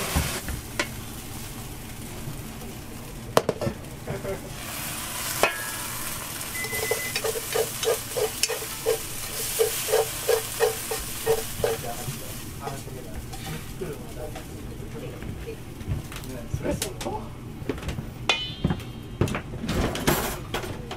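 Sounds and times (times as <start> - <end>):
frying sizzle: 0.0 - 17.6
chopsticks scraping noodles: 6.8 - 12.0
chopsticks knocking on pan: 9.6 - 11.9, 18.3 - 19.3.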